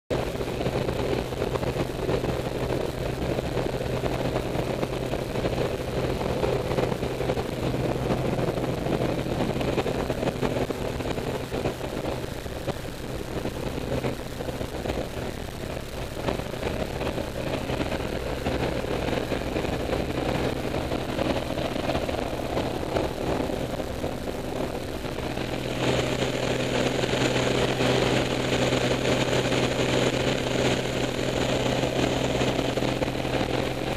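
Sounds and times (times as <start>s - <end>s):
light aircraft engine drone: 0.1s - 33.9s
rush of wind: 0.1s - 33.9s.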